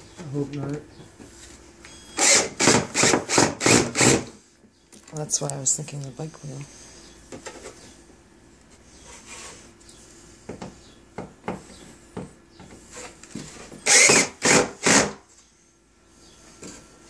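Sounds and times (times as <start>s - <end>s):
power drill driving screws: 2.2s - 4.3s, 13.8s - 15.2s.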